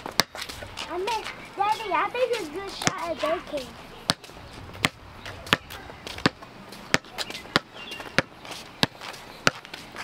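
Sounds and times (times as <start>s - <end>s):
basketball bouncing on concrete: 0.0s - 10.0s.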